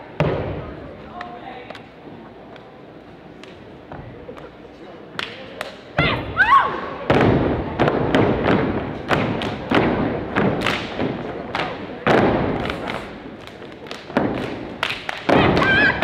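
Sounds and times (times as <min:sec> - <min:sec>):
stomps and hand claps: 0:07.1 - 0:16.0
shouted call: 0:15.4 - 0:16.0.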